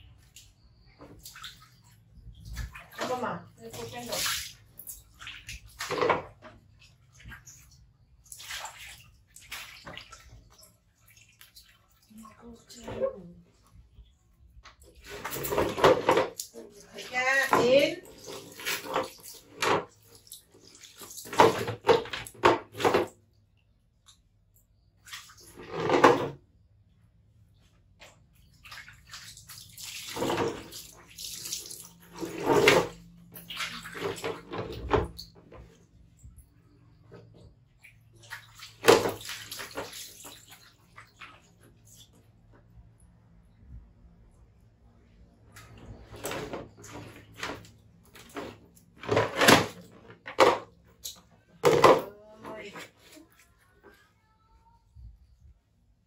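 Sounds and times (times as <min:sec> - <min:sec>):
water splashing onto tile floor: 0:00.0 - 0:26.4, 0:27.9 - 0:53.8
plastic stools scraping on tiles: 0:15.0 - 0:19.9, 0:21.2 - 0:23.1, 0:25.5 - 0:26.4, 0:30.1 - 0:30.7, 0:32.1 - 0:33.2, 0:33.9 - 0:35.6, 0:45.8 - 0:50.7, 0:51.6 - 0:53.2
plastic clatter: 0:48.2 - 0:50.7, 0:51.5 - 0:52.1.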